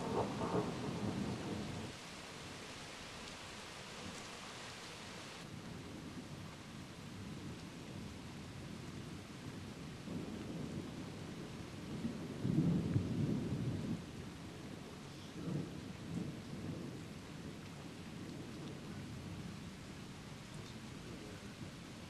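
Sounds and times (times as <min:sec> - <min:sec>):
thunder rumbling: 0:00.0 - 0:02.0, 0:09.5 - 0:14.1
steady rain: 0:00.0 - 0:22.0.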